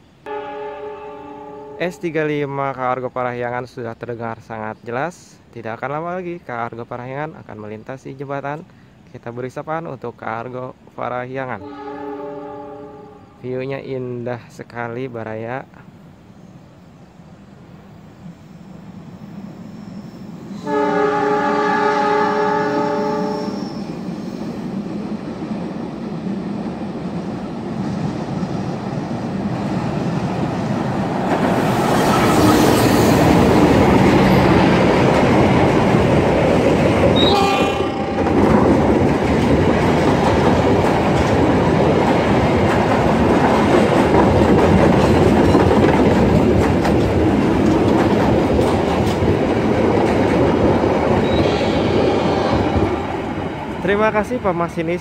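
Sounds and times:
train rumbling past: 0.0s - 8.7s, 15.4s - 55.0s
train air horn: 0.3s - 2.0s, 11.6s - 13.4s, 20.6s - 23.8s, 37.2s - 38.4s
wheels clacking over rail joints: 38.2s - 51.4s.

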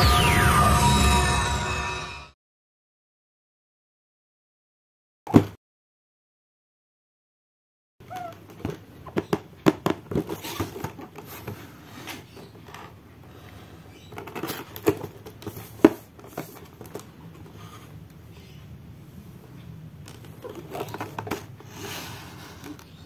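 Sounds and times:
hands handling cardboard box: 8.1s - 13.1s, 14.0s - 18.0s, 20.1s - 23.0s.

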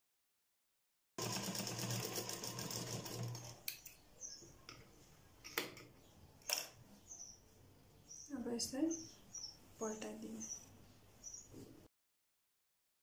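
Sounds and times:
sewing machine running: 1.2s - 3.6s.

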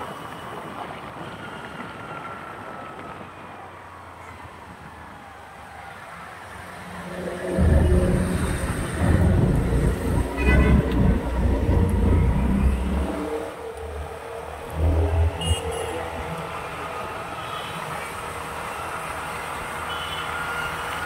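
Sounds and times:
highway traffic rumble: 0.0s - 21.0s
short horn tone: 7.2s - 13.4s, 15.3s - 16.0s.

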